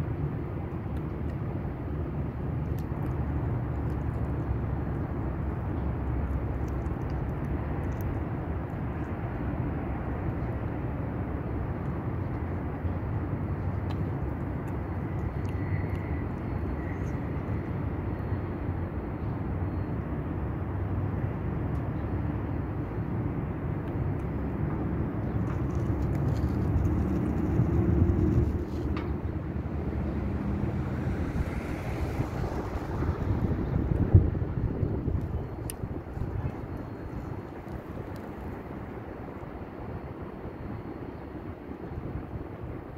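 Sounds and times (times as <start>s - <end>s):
city background rumble: 0.0s - 42.9s.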